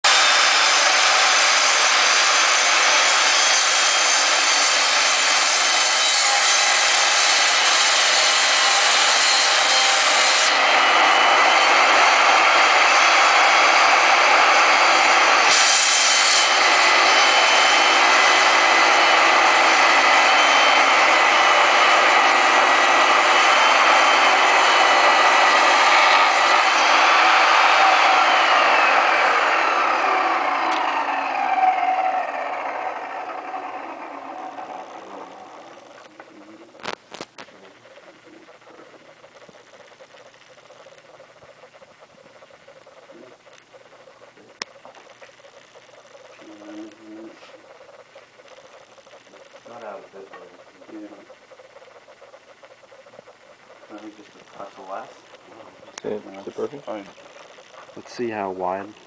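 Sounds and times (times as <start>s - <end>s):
table saw cutting wood: 0.0s - 36.3s
saw motor high whine: 0.0s - 36.7s.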